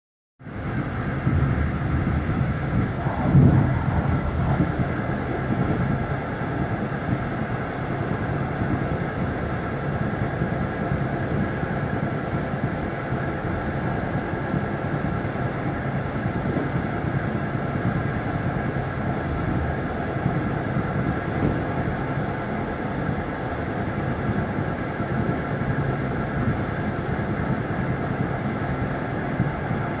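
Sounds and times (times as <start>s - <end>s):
steady multi-tone hum: 0.4s - 30.0s
train wheels rumbling on rail: 0.4s - 30.0s.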